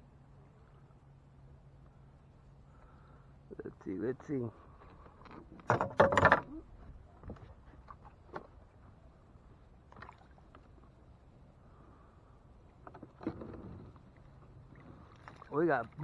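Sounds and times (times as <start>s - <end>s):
rope and water sounds: 4.6s - 16.0s
water splashing: 9.8s - 11.0s, 13.1s - 16.0s.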